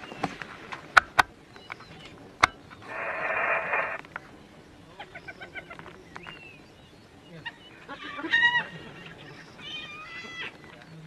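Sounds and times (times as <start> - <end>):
hyenas high-pitched calls: 2.8 - 4.0.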